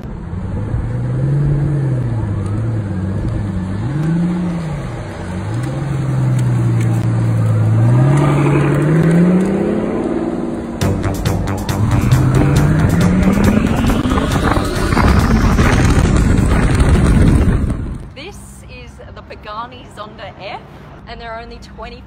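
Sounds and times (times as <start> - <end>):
car engine accelerating: 0.0 - 18.1.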